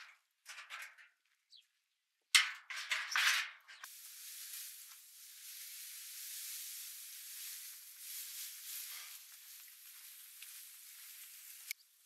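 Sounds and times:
faint steady hiss: 3.8s - 12.0s.

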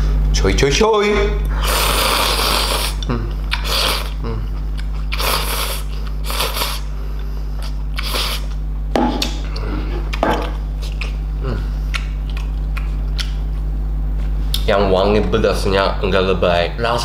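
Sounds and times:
steady low hum: 0.0s - 17.0s
person slurping noodles: 1.6s - 4.4s, 5.0s - 6.9s, 7.6s - 8.5s.

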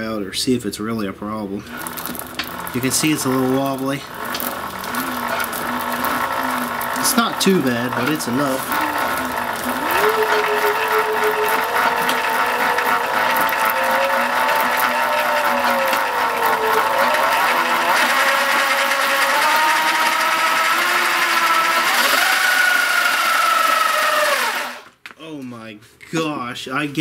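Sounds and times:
chain rattle: 1.7s - 18.7s
electric motor whine: 1.7s - 24.9s.

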